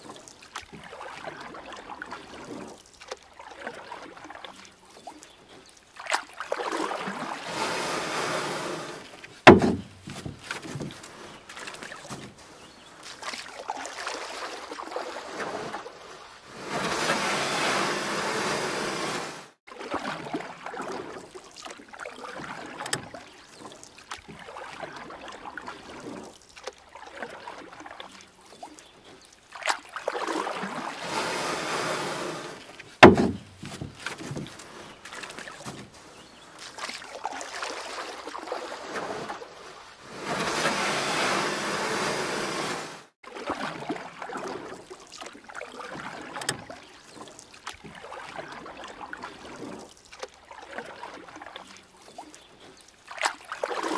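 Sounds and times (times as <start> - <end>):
paddle splashing water: 0.0 - 53.9
water trickling and lapping: 0.0 - 53.9
sharp knock: 9.5 - 10.0, 33.0 - 33.5.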